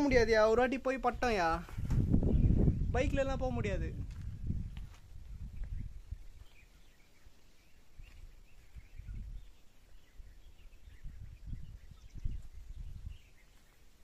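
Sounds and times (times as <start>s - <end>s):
faint bird chirps: 5.2s - 14.0s.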